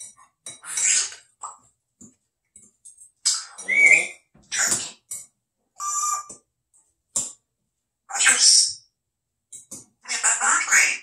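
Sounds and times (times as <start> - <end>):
parrot squawking: 0.6 - 1.5, 3.2 - 5.1, 8.1 - 8.8, 10.0 - 11.0
parrot buzzy beep-like call: 5.8 - 6.3.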